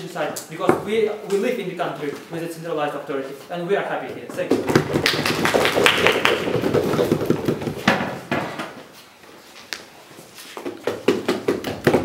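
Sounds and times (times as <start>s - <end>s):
audience applause: 5.0s - 6.8s.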